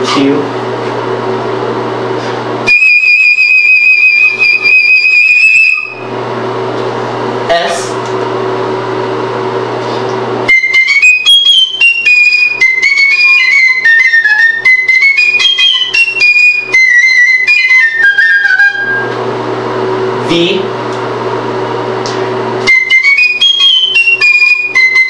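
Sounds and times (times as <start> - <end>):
room hum: 0.0 - 25.0
flute playing fast notes: 2.6 - 6.1, 10.5 - 19.1, 22.6 - 25.0.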